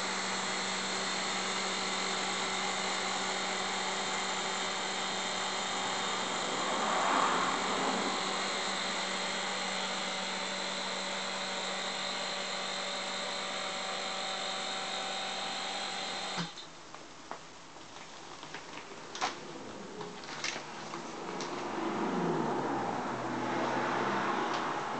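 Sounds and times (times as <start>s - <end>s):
vacuum pump whining: 0.0s - 16.6s.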